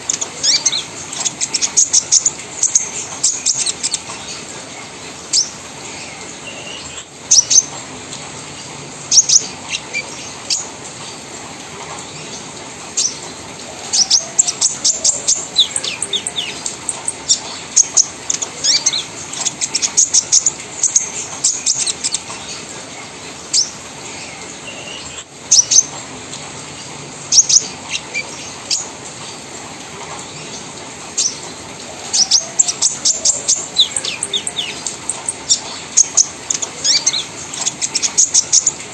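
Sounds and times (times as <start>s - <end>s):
bird chips and chattering trills: 32.1s - 38.9s.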